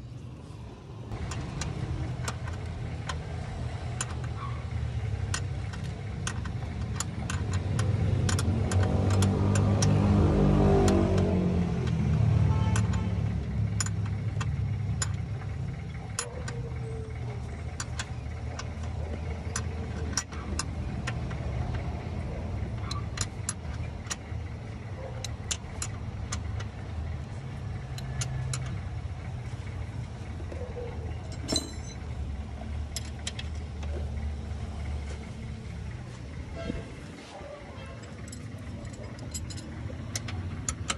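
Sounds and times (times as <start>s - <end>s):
car engine running: 0.0s - 40.9s
light clicks and clinks: 30.5s - 32.1s, 37.7s - 40.9s.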